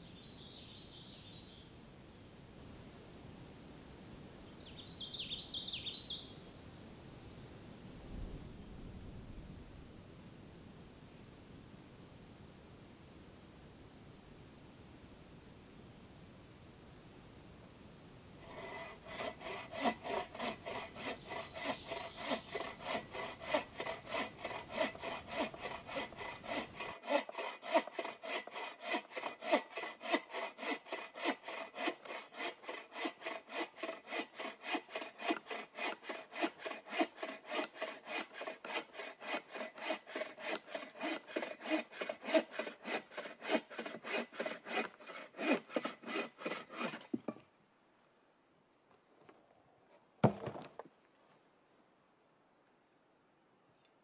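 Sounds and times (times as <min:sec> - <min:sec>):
hand saw cutting wood: 0:18.4 - 0:47.3.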